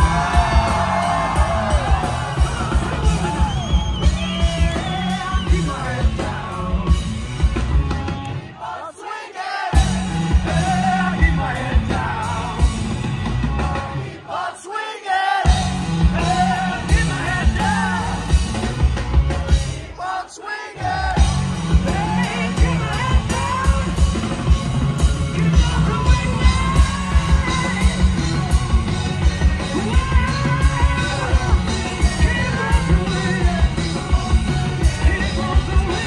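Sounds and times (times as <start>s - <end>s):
live rock band playing: 0.0s - 8.6s, 9.7s - 14.3s, 15.4s - 20.0s, 20.8s - 36.0s
man singing: 4.2s - 7.4s, 9.8s - 13.0s, 14.4s - 18.4s, 20.0s - 36.0s.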